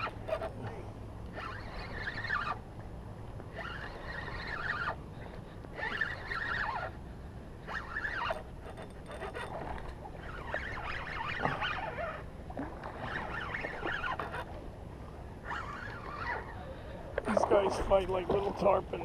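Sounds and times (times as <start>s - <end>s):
fishing reel cranking: 0.0s - 0.7s, 1.3s - 2.6s, 3.5s - 5.0s, 5.7s - 7.0s, 7.6s - 12.3s, 13.0s - 14.5s, 15.4s - 16.6s
wind and water rumble: 0.0s - 19.0s.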